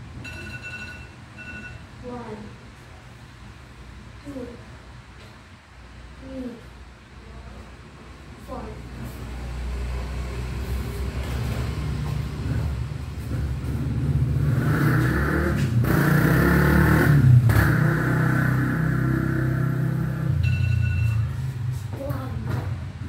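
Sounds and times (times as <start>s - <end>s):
vehicle engine running: 8.5s - 23.0s.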